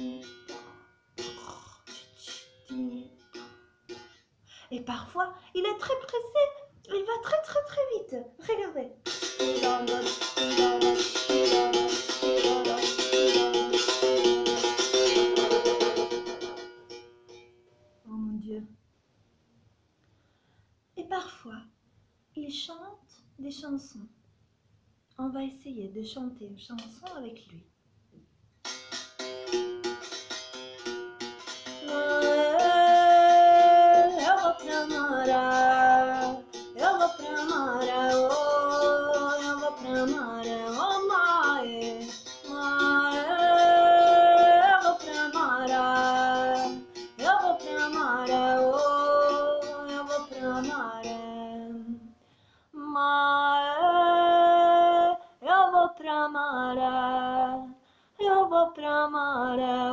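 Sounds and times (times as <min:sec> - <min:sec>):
woman singing: 0:00.0 - 0:00.5, 0:01.3 - 0:03.2, 0:09.4 - 0:13.5, 0:31.7 - 0:52.1, 0:52.8 - 0:59.9.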